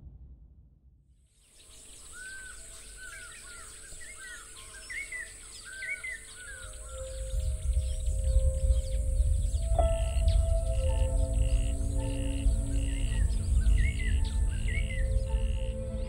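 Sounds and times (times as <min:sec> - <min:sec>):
low rumble: 0:00.0 - 0:01.2, 0:07.2 - 0:16.0
small birds chirping: 0:01.4 - 0:16.0
high-pitched insect drone: 0:05.8 - 0:16.0.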